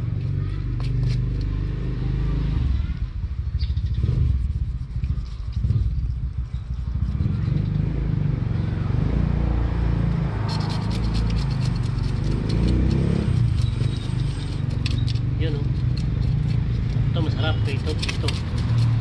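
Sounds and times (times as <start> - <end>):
low rumble: 2.5 - 12.3
knife scraping fish: 10.4 - 19.0.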